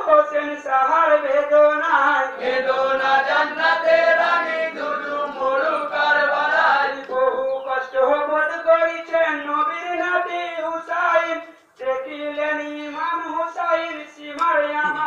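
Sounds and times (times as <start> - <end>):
men chanting in chorus: 0.9 - 9.4.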